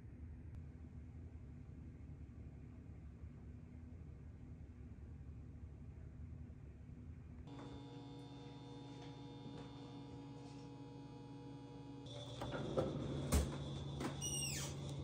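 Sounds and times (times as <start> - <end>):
short falling squeak: 14.1 - 15.0.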